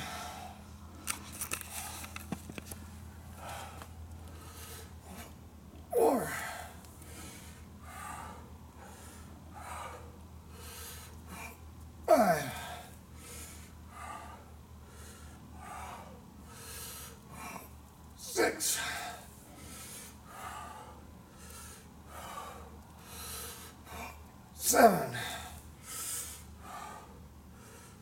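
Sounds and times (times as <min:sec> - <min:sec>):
man breathing hard: 0:00.0 - 0:02.3, 0:03.2 - 0:05.4, 0:06.0 - 0:28.0
man's strained exhalations: 0:05.9 - 0:09.0, 0:10.7 - 0:13.4, 0:17.4 - 0:20.9, 0:23.9 - 0:27.1.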